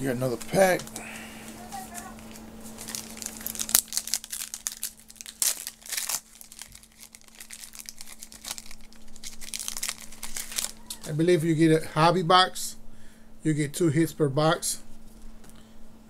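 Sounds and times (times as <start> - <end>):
faint steady hum: 0.0 - 16.0
cards rustling: 0.3 - 11.2
wrapper tearing and crinkling: 1.8 - 11.2.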